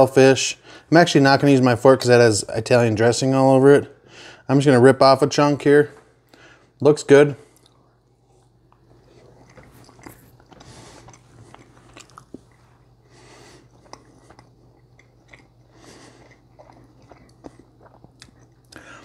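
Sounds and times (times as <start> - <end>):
man chewing: 7.4 - 19.0.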